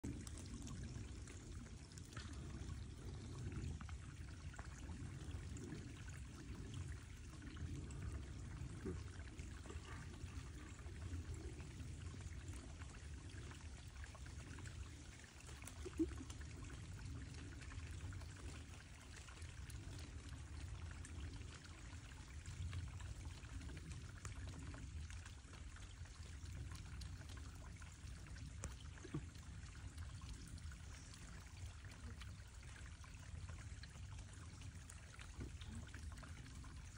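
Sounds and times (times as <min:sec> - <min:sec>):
stream trickling: 0:00.0 - 0:36.9.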